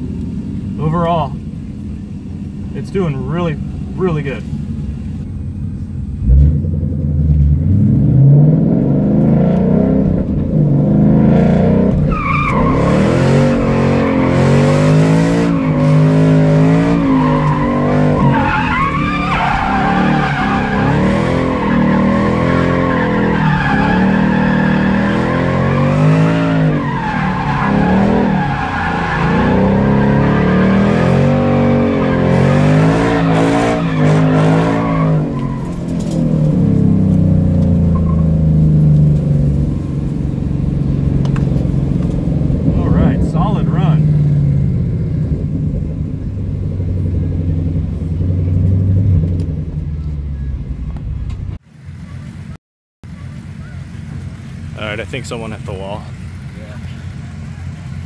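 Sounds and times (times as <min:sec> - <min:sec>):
car engine revving: 0:00.0 - 0:51.6
tires squealing: 0:07.7 - 0:46.1.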